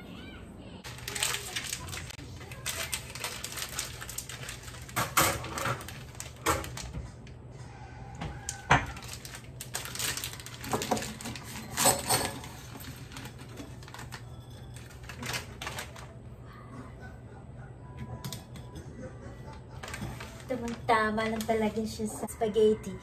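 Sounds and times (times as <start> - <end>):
spaghetti rattling in glass jar: 0.9 - 6.9, 8.7 - 16.2, 19.8 - 22.0.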